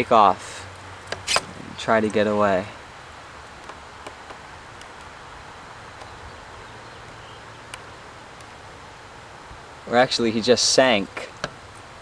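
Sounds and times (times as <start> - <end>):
faint outdoor hiss: 0.0 - 12.0
small ticks: 3.4 - 5.2, 5.9 - 6.2, 7.7 - 8.6.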